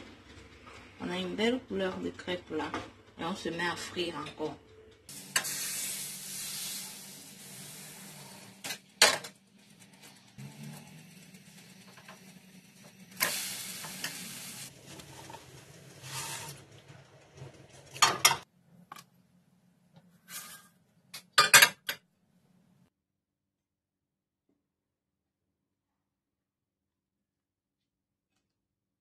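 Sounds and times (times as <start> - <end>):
batter sizzling in frying pan: 5.1 - 18.0.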